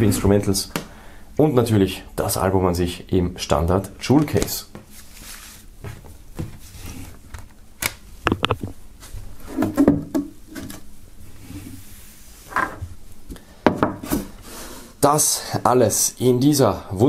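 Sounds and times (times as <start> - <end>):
rustle of paper and cloth: 4.9 - 7.2.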